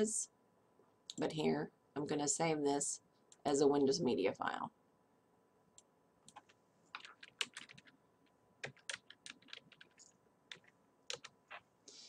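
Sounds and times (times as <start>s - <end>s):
faint keyboard typing: 5.7s - 11.7s.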